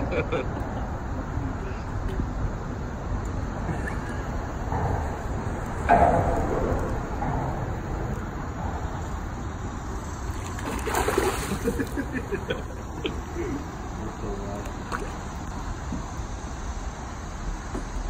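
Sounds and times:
fish thrashing and splashing: 0:10.2 - 0:12.1.

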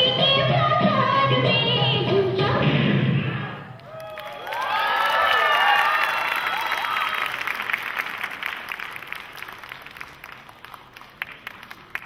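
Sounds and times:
whoops and cheers: 0:03.8 - 0:07.5
audience applauding: 0:03.8 - 0:12.0.

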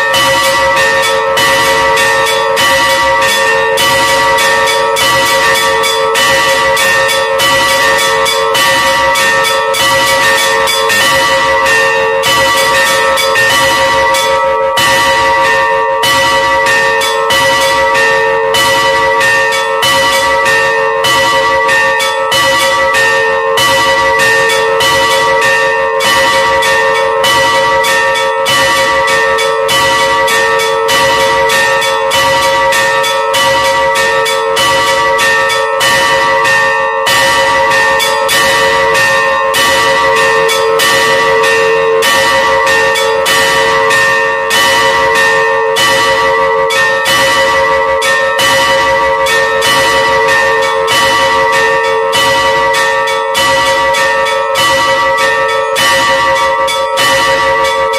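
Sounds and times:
church bells pealing: 0:00.0 - 0:57.9.

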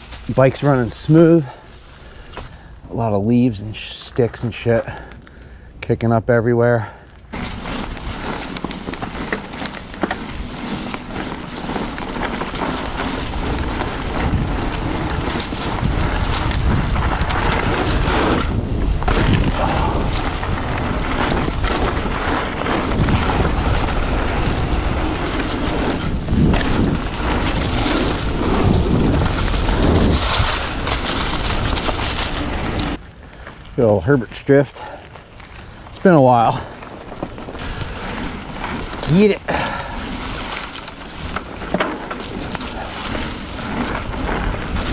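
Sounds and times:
bike tyres rolling over leaves: 0:00.0 - 0:05.5, 0:07.3 - 0:44.9
sticks crackling and knocking: 0:07.3 - 0:24.0, 0:35.1 - 0:44.9
wind buffeting microphone: 0:07.4 - 0:33.2, 0:36.5 - 0:44.9.

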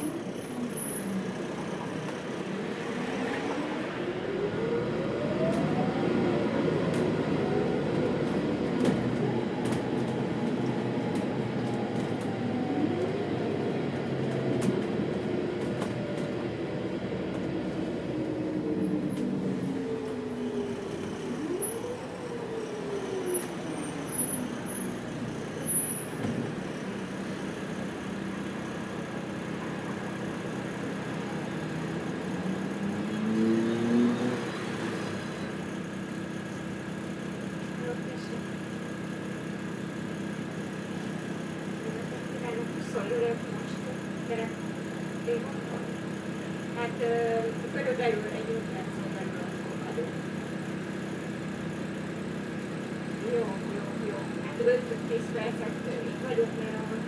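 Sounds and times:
bus engine whining: 0:00.0 - 0:57.0.

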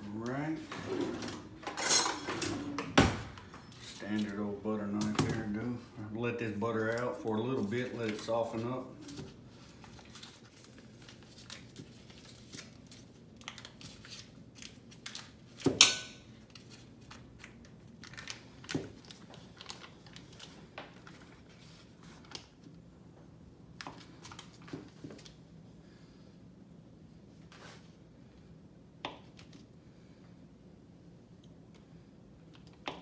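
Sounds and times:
paper wrapper crinkling: 0:06.7 - 0:15.6, 0:16.4 - 0:22.6.

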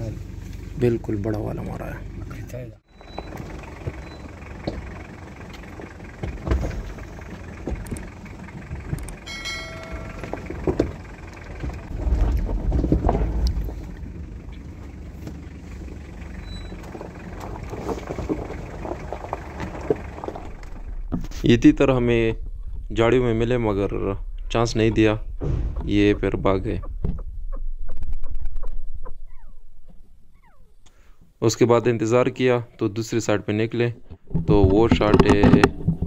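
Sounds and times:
off-road vehicle rumbling: 0:00.0 - 0:36.0
knocks and rattles: 0:02.9 - 0:30.4, 0:34.0 - 0:36.0
short electronic chime: 0:09.3 - 0:10.4.

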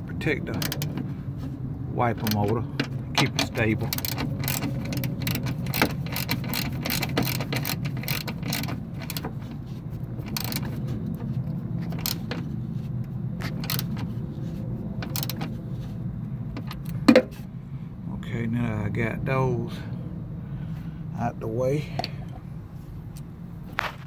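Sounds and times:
steady low hum: 0:00.0 - 0:24.0
wrench clicking on metal: 0:00.5 - 0:01.0, 0:02.1 - 0:09.4, 0:10.2 - 0:10.8, 0:11.8 - 0:12.4, 0:13.4 - 0:14.1, 0:15.0 - 0:15.5.

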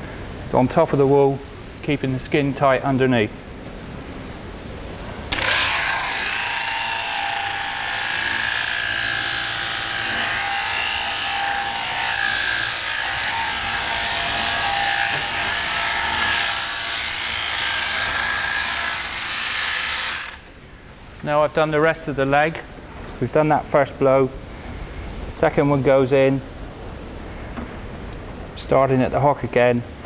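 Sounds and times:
shearing handpiece whirring: 0:05.3 - 0:20.5.

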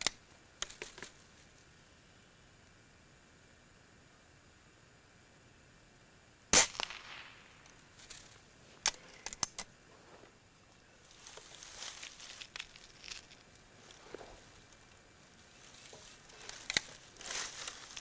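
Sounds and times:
air rifle shot: 0:06.5 - 0:07.6
faint rustling: 0:07.7 - 0:18.0
sharp clicks: 0:08.8 - 0:09.7.

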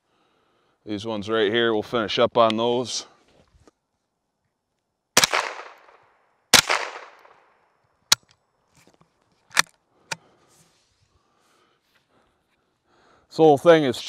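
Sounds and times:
rifle shots ringing: 0:05.2 - 0:07.5.

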